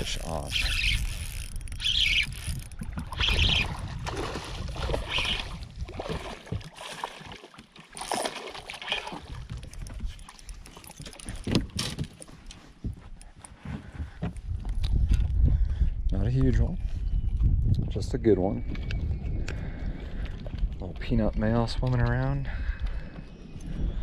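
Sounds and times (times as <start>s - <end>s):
wind rumbling on microphone: 0.0s - 6.8s, 9.0s - 24.0s
fish thrashing water splashing: 2.8s - 11.4s
sharp splashes or knocks: 2.9s - 9.5s.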